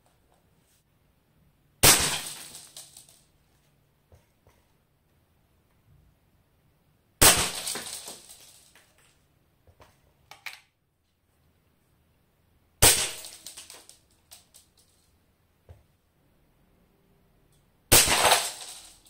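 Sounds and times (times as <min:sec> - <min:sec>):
shards clinking onto floor: 0:02.1 - 0:03.2, 0:07.5 - 0:08.9, 0:13.1 - 0:15.0, 0:18.0 - 0:19.0.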